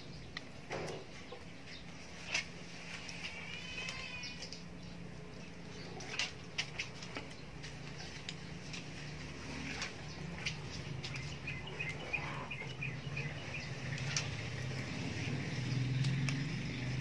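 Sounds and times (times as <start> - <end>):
bird chirping: 3.3 - 17.0.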